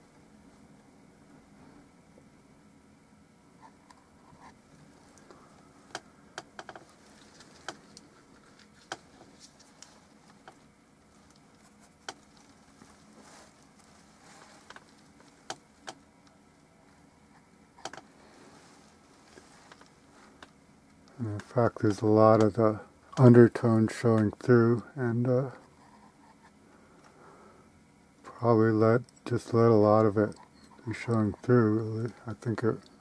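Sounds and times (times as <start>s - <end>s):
sharp light clicks and taps: 11.2s - 12.5s, 14.6s - 16.4s, 17.8s - 18.0s.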